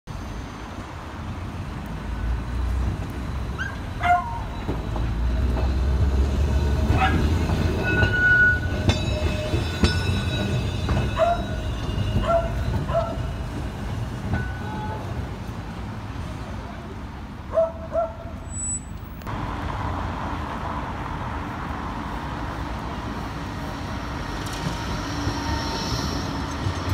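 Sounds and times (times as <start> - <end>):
tram wheels rumbling on track: 0.1 - 18.4, 19.0 - 26.9.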